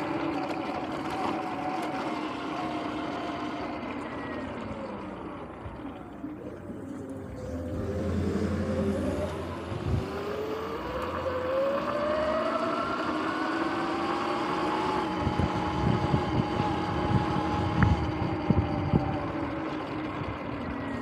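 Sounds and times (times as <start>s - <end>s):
electric motor whining: 0.0s - 21.0s
wind rush on microphone: 7.5s - 10.5s, 15.1s - 19.5s.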